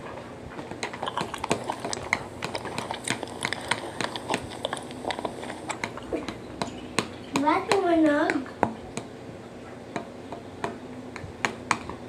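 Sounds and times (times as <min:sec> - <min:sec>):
chewing and lip smacks: 0:00.8 - 0:06.4.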